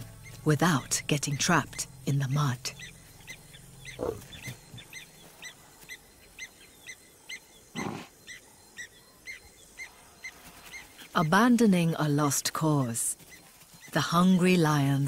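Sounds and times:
low animal grunts: 0:03.9 - 0:04.5, 0:07.7 - 0:08.1.

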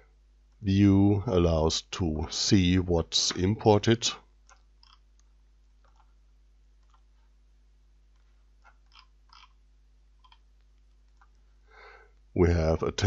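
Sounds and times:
low steady hum: 0:00.0 - 0:13.0
computer mouse clicks: 0:04.4 - 0:06.2, 0:06.8 - 0:07.1, 0:08.1 - 0:09.6, 0:10.2 - 0:11.4.

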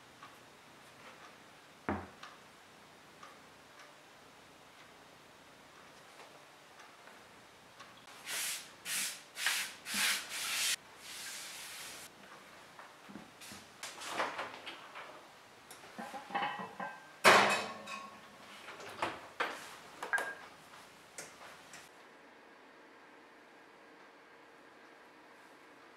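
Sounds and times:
oven door and rack clatter: 0:13.9 - 0:15.2, 0:15.8 - 0:19.6.

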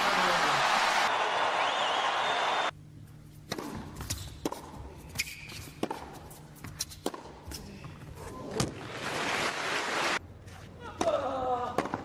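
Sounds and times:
tennis ball bouncing: 0:03.5 - 0:07.5
racket striking tennis ball: 0:03.5 - 0:07.6.

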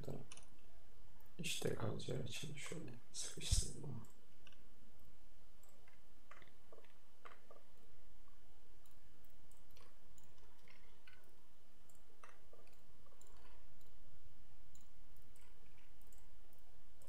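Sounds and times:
low background hum: 0:00.0 - 0:17.0
computer mouse clicks: 0:00.1 - 0:01.3, 0:03.5 - 0:07.9, 0:08.8 - 0:14.0, 0:14.7 - 0:17.0.

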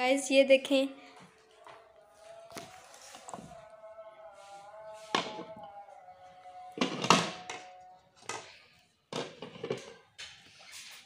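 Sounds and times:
faint tune: 0:01.0 - 0:08.9.

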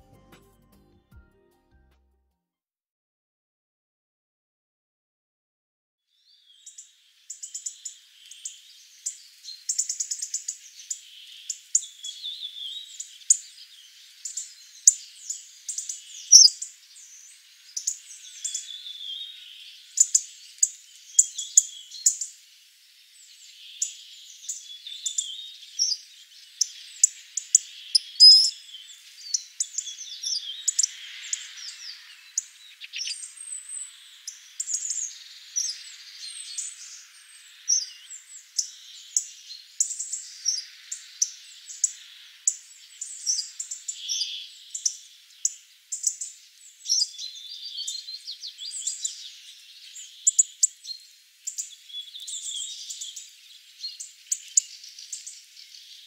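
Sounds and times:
finches calling with sharp ticks: 0:06.6 - 0:22.4, 0:23.4 - 0:56.0.

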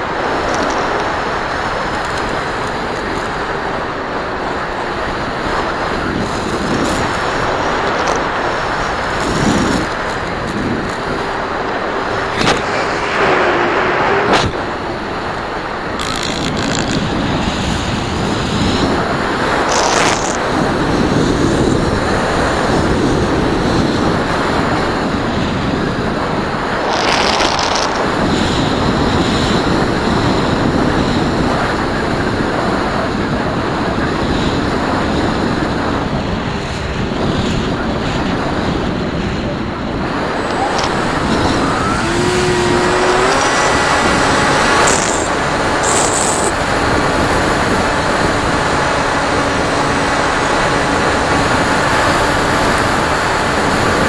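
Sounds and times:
airflow rushing over microphone: 0:00.0 - 0:34.1, 0:35.1 - 0:54.0
short crackles: 0:26.8 - 0:28.1, 0:40.3 - 0:46.6.

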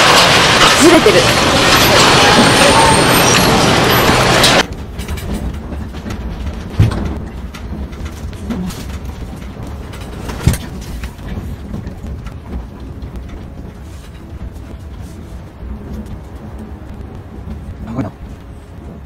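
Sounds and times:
loud rush of noise: 0:00.0 - 0:05.9
room rumbling in earthquake: 0:00.0 - 0:19.0.

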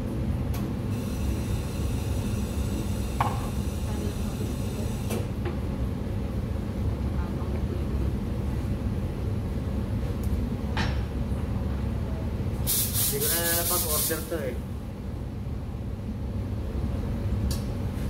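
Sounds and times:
espresso machinery humming: 0:00.1 - 0:09.6
cups clinking: 0:03.2 - 0:03.5.

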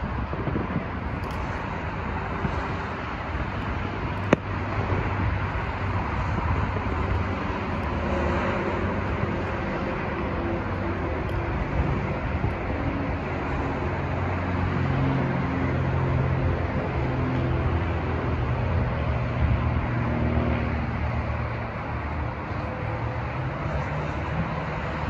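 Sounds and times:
road traffic and engine noise: 0:00.0 - 0:25.0
sharp crack: 0:04.2 - 0:04.8.

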